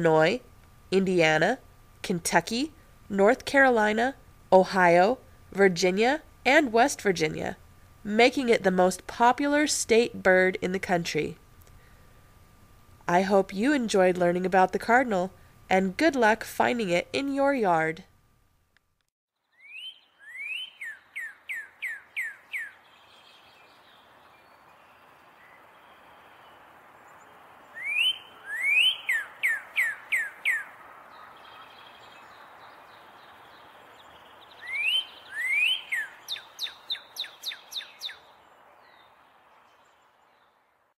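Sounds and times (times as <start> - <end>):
outdoor background hiss: 0.0 - 41.0
cardinal singing whistles: 27.8 - 30.6, 34.6 - 38.2.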